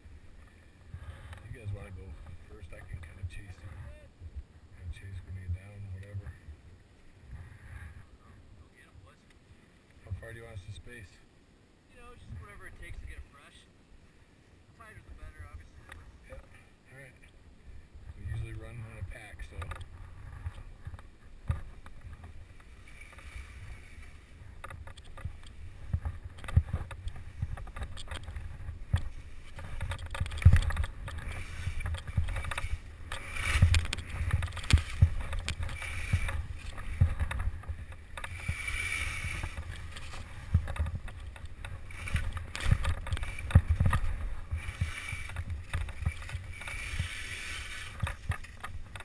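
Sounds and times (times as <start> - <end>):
skis swishing through snow: 31.2 - 48.9.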